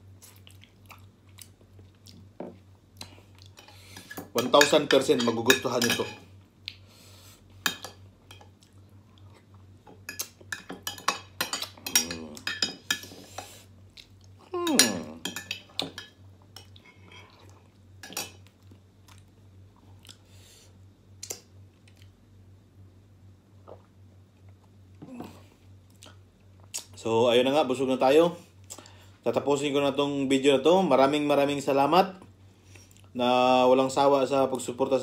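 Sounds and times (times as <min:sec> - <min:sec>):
person chewing: 0:00.1 - 0:04.1, 0:18.6 - 0:20.3, 0:23.6 - 0:27.0
cutlery clinking on dishes: 0:04.0 - 0:06.3, 0:10.1 - 0:13.1.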